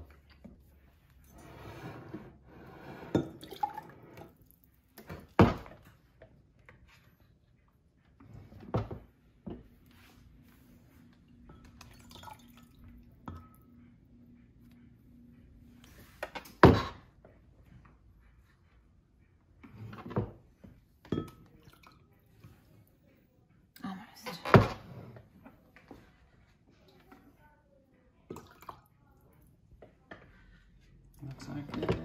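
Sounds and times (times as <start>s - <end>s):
liquid pouring and dripping: 3.4s - 5.2s, 11.6s - 13.6s.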